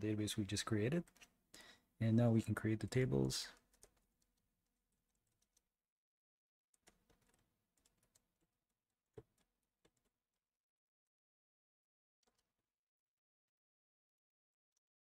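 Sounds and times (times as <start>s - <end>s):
computer keyboard keystrokes: 2.8s - 4.3s.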